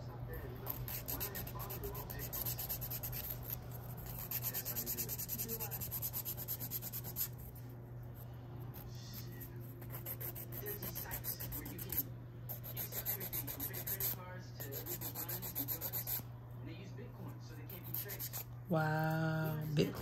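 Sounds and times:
nail file rasping on fingernail: 0:00.7 - 0:07.4, 0:09.2 - 0:16.2, 0:17.7 - 0:18.5.

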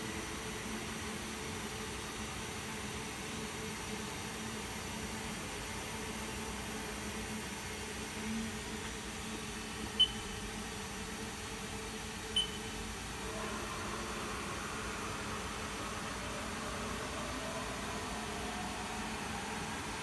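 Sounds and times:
short high-pitched beeps: 0:10.0 - 0:10.3, 0:12.4 - 0:12.7.

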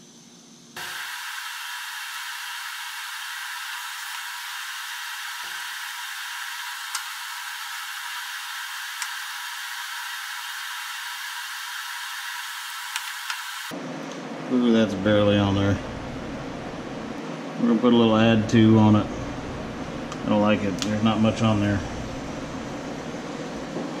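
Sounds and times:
blower hiss: 0:00.0 - 0:13.8.

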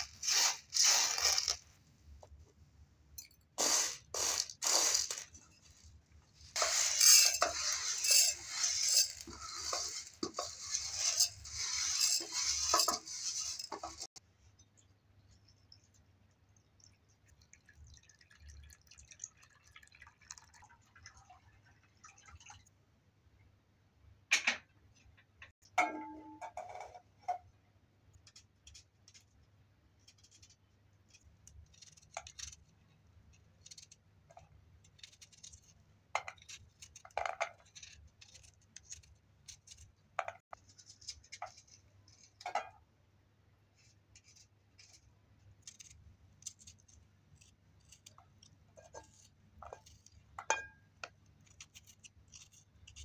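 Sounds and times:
water pouring into a pot: 0:15.6 - 0:22.7
metal pot clanking: 0:25.8 - 0:27.0
knife cutting onions: 0:30.0 - 0:42.4, 0:43.8 - 0:53.0.

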